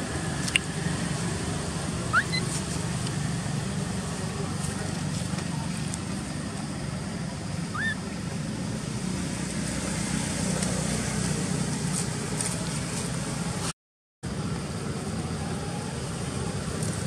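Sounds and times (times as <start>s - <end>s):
outdoor background noise: 0.0s - 17.0s
short rising squeak: 2.1s - 2.5s.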